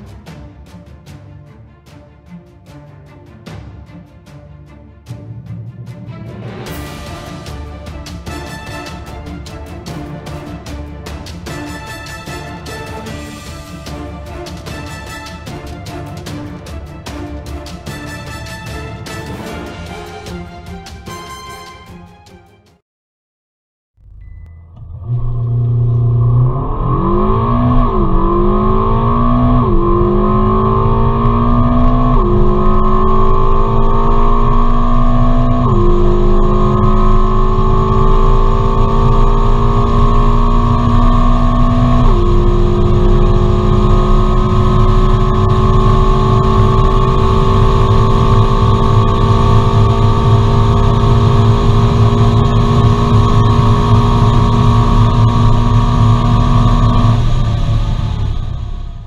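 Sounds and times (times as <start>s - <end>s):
car engine at full throttle: 24.0s - 59.0s
rushing noise: 25.0s - 59.0s.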